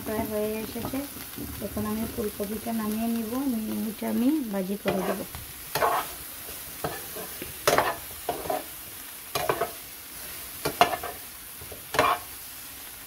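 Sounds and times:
vegetables sizzling in oil: 0.0 - 13.0
metal spoon scraping pan: 4.8 - 8.7, 9.3 - 12.3.

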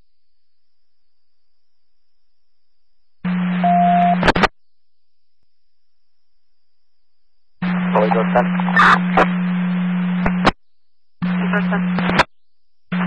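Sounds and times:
low radio hum: 3.3 - 4.5, 7.6 - 10.6, 11.2 - 12.3
radio static hiss: 3.3 - 4.5, 7.6 - 10.6, 11.2 - 12.3
faint unintelligible radio voice: 7.6 - 9.2, 11.4 - 12.2.

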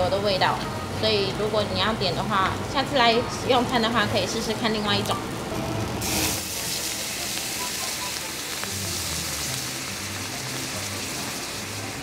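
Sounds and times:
sauce sizzling in a hot pan: 5.9 - 12.0.

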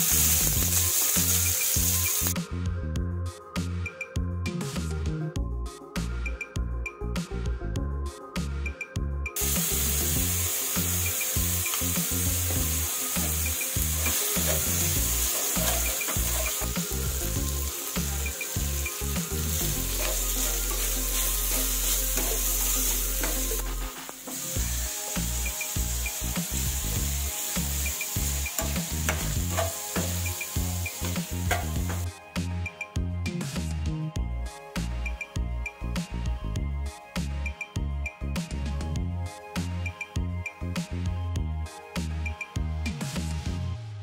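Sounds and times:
onions sizzling in hot oil: 0.0 - 2.4, 9.4 - 32.1
metal spatula scraping pan: 14.0 - 16.8, 28.6 - 30.3.

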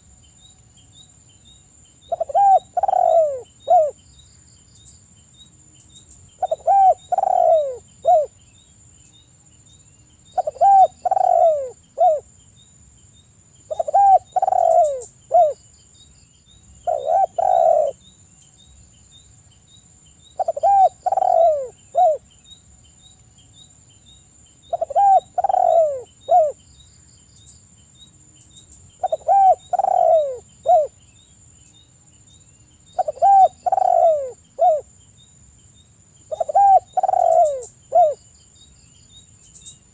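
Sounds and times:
dove cooing: 2.1 - 4.0, 6.4 - 8.3, 10.4 - 12.3, 13.7 - 15.6, 16.8 - 18.0, 20.4 - 22.2, 24.7 - 26.6, 29.0 - 31.0, 33.0 - 34.9, 36.3 - 38.2.

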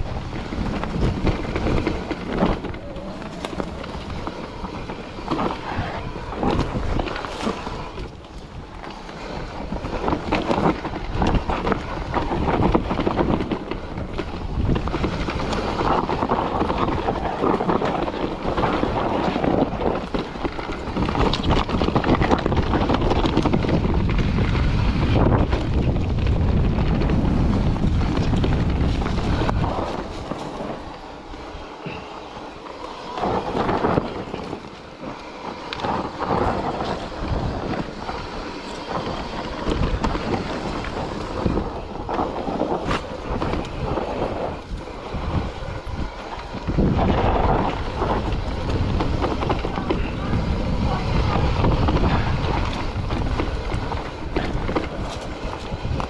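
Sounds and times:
bike knocking and rattling: 0.0 - 56.0
tyres rumbling on dirt trail: 0.0 - 56.0
wind buffeting microphone: 0.0 - 56.0.

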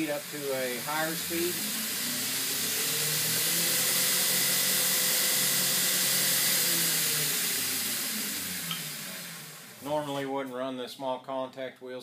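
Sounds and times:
abrasive belt hissing: 0.0 - 8.1
motor whine: 0.0 - 10.2.

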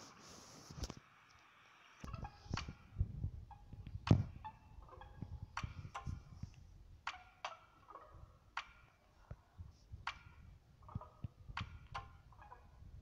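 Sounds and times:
faint clicks and ticks: 0.8 - 9.4.

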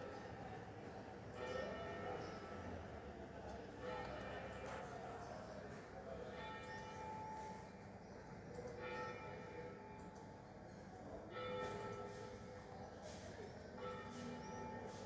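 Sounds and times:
church bell ringing: 1.3 - 5.0, 6.2 - 7.7, 8.8 - 10.2, 11.2 - 12.7, 13.7 - 15.0.

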